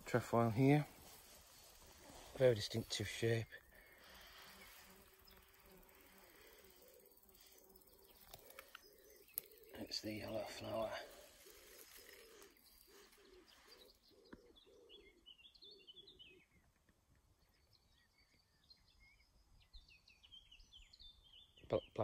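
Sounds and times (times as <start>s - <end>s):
woodpigeon cooing: 5.4s - 16.6s.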